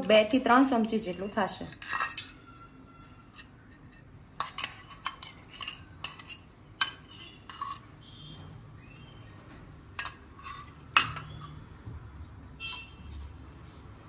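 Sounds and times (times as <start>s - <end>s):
steel spoon clinking on dishes: 0.7s - 2.7s, 3.3s - 7.9s, 9.9s - 11.6s.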